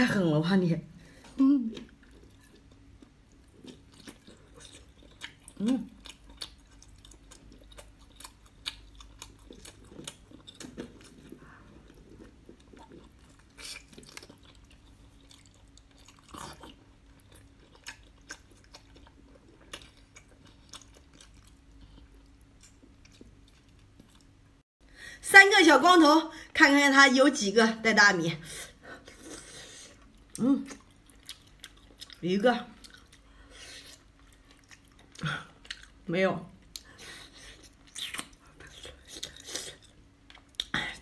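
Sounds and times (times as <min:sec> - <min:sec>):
wet chewing clicks: 0:01.8 - 0:11.3.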